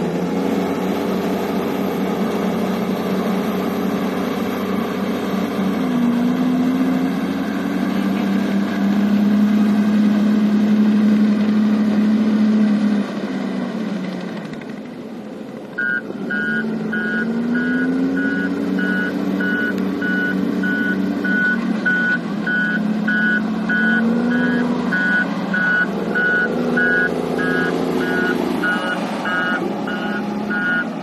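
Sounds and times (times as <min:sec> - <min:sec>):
diesel engine running: 0:00.0 - 0:31.0
reversing alarm beeping: 0:15.8 - 0:30.9.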